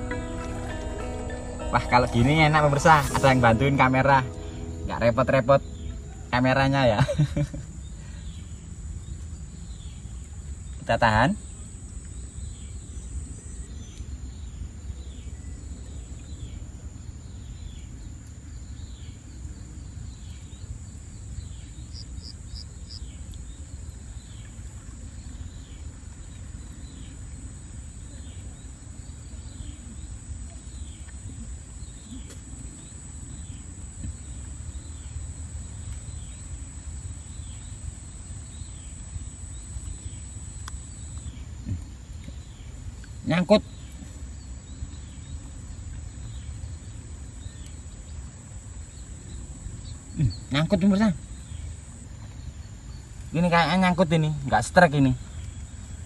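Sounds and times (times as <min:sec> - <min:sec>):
low rumble: 0:00.0 - 0:07.4
high-pitched insect drone: 0:00.0 - 0:08.0, 0:27.4 - 0:42.0, 0:48.7 - 0:55.1.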